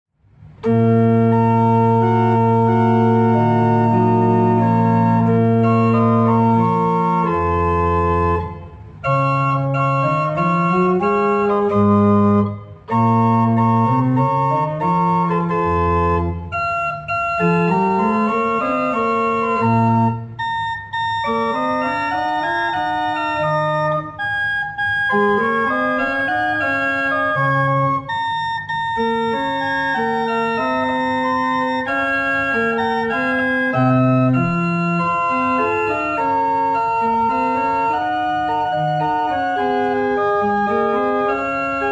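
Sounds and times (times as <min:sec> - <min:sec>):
church organ playing chords: 0:00.6 - 0:41.9.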